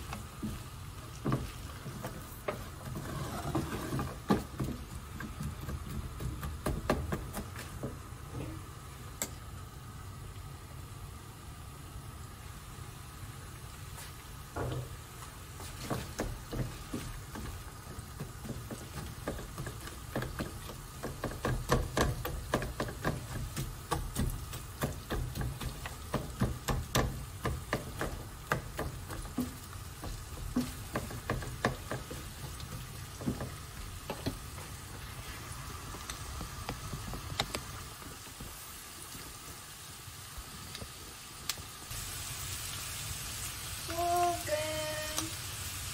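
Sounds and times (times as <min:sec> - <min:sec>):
vegetables sizzling in a frying pan: 0:00.0 - 0:45.9
spatula tapping against a pan: 0:15.9 - 0:34.4.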